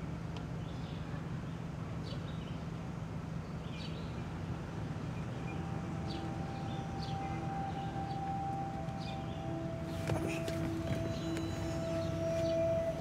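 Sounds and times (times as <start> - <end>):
low street rumble: 0.0 - 13.0
bird chirps: 5.1 - 13.0
steady held tone: 5.1 - 13.0.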